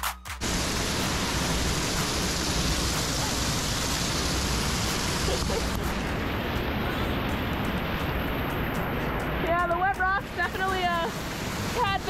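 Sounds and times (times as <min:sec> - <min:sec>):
waterfall splashing over rock: 0:00.4 - 0:12.0.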